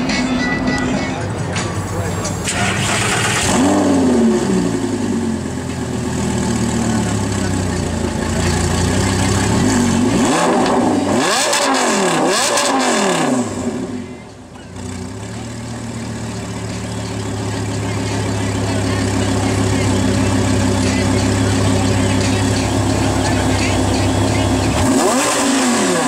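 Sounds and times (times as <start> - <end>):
sports car engine idling: 0.0 - 11.3, 11.9 - 26.0
engine revving: 2.4 - 14.2, 17.7 - 26.0.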